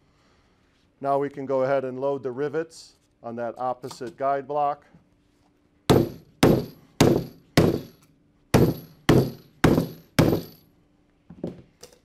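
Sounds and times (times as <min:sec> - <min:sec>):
sledgehammer striking metal rivets: 0:05.9 - 0:10.7.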